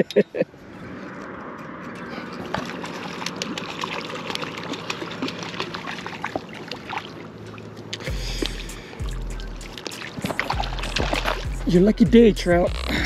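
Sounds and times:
fish splashing at water surface: 2.0s - 11.6s.

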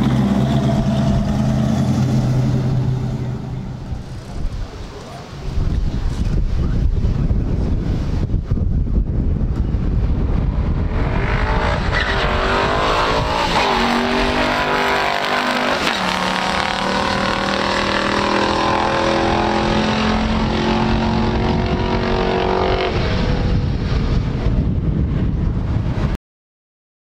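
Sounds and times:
vee eight engines at full throttle: 0.0s - 4.6s, 10.1s - 23.7s
wind buffeting microphone: 0.0s - 26.2s.

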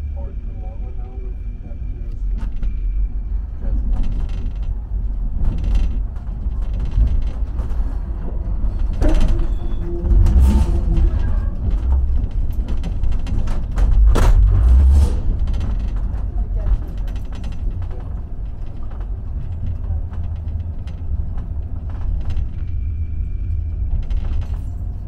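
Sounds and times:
train wheels rumbling on tracks: 0.0s - 25.0s
wheels clunking over rail joints: 3.7s - 25.0s
short squeal: 9.3s - 11.5s.

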